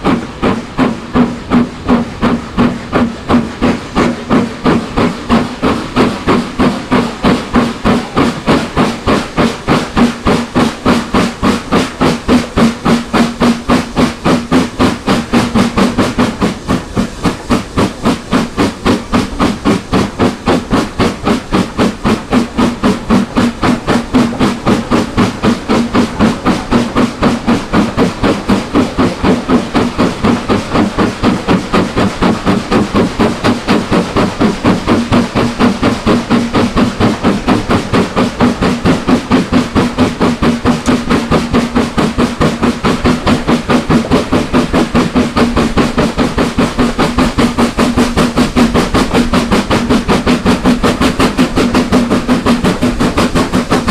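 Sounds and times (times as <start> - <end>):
steam locomotive chuffing: 0.0 - 53.9.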